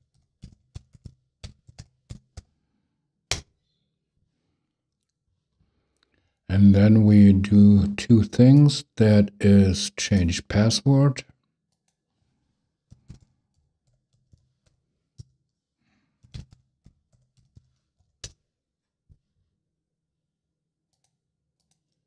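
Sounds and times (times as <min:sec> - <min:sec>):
faint keyboard typing: 0:00.0 - 0:02.6, 0:12.8 - 0:15.6, 0:16.2 - 0:18.5, 0:20.9 - 0:22.0.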